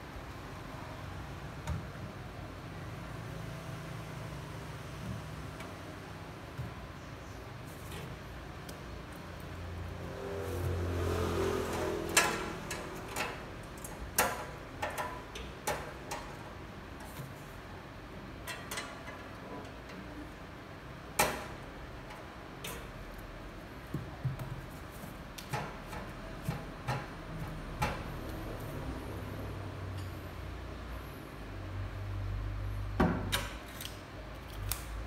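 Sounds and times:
clicks and knocks of safe fittings: 12.1s - 17.1s, 18.4s - 20.1s.

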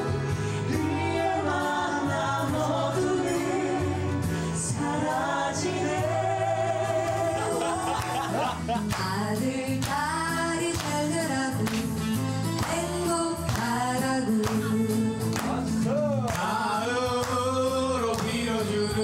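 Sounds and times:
backing track with steady beat: 0.0s - 19.0s
woman singing into a microphone: 8.8s - 15.3s
man singing into a microphone: 16.4s - 19.0s.

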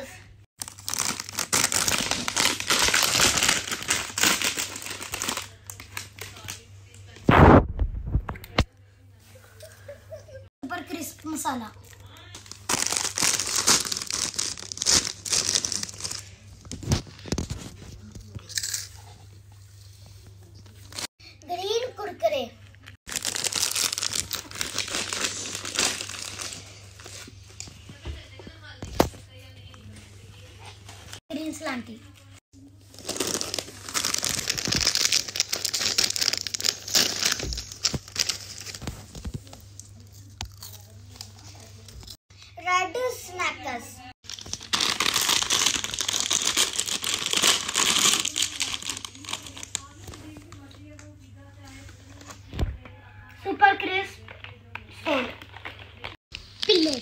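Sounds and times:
plastic snack packet crinkling: 0.6s - 6.6s, 11.8s - 17.6s, 23.1s - 27.3s, 32.8s - 42.2s, 44.2s - 51.1s.

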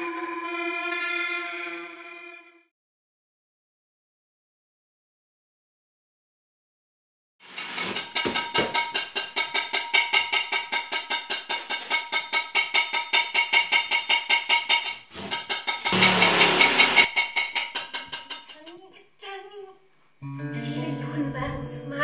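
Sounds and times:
fast percussive strikes: 7.4s - 18.7s.

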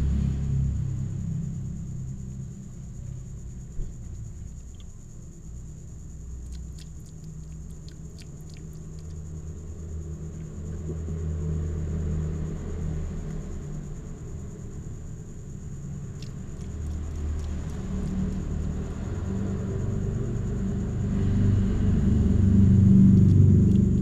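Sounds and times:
low rumble: 0.0s - 24.0s
cat chewing with crisp clicks: 6.4s - 9.3s, 16.0s - 18.5s, 23.1s - 24.0s.

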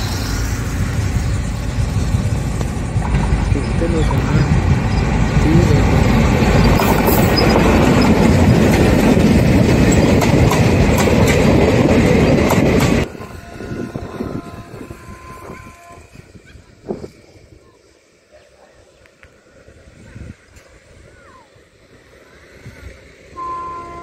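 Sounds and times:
train passing at speed: 0.0s - 24.0s
wheels clattering over rail joints: 1.4s - 13.1s.

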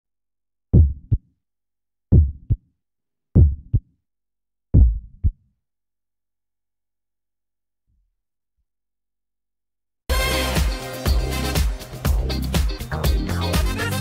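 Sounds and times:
heartbeat-like thumps: 0.7s - 1.2s, 2.1s - 2.6s, 3.4s - 3.9s, 4.8s - 5.4s.

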